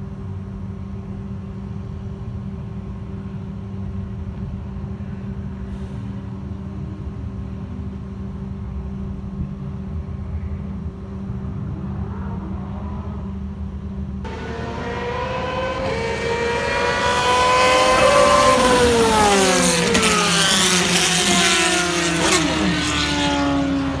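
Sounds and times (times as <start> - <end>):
race car passing at speed: 14.3 - 24.0.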